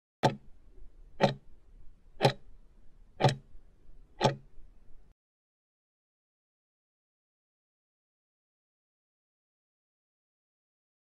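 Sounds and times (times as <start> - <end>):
clock ticks: 0.2 - 0.5, 1.2 - 1.5, 2.2 - 2.5, 3.2 - 3.5, 4.2 - 4.5.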